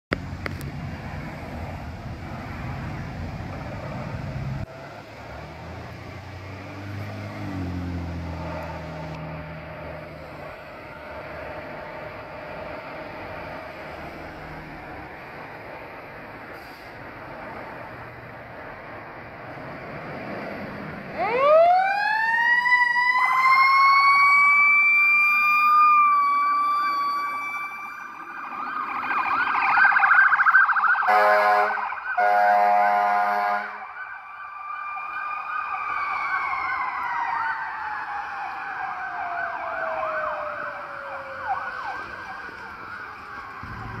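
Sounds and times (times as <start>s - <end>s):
mechanical siren howling: 7.0s - 15.1s, 21.1s - 44.0s
electronic siren yelping: 21.2s - 32.5s, 33.6s - 44.0s
air horn blasts: 31.1s - 33.8s.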